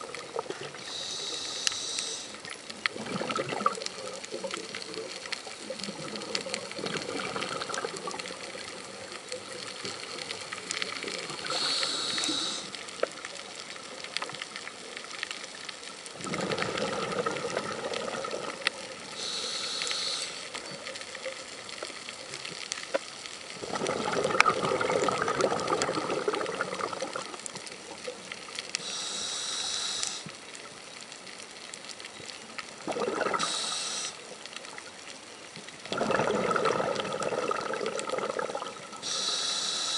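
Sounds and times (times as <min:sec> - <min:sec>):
exhaled air bubbling underwater: 0:00.0 - 0:39.9
regulator hiss on inhale: 0:00.6 - 0:02.7, 0:08.9 - 0:13.2, 0:18.5 - 0:20.8, 0:28.6 - 0:30.6, 0:33.3 - 0:34.4, 0:39.0 - 0:39.9.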